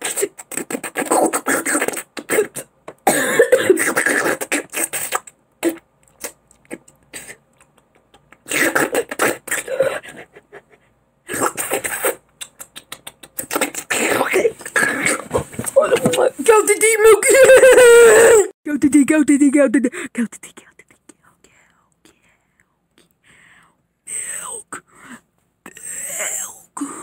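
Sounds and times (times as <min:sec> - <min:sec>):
wet sucking mouth noises: 0:00.0 - 0:02.7, 0:03.8 - 0:15.4.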